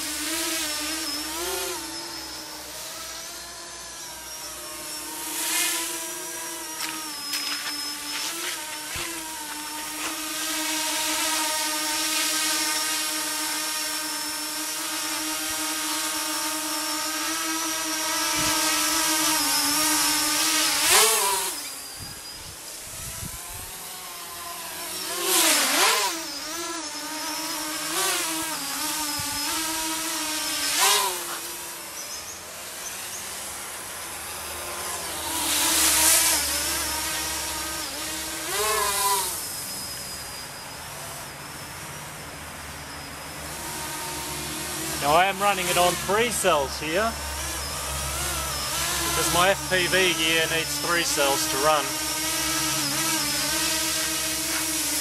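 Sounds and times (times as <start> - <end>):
electric motors and propellers whining: 0.0 - 55.0.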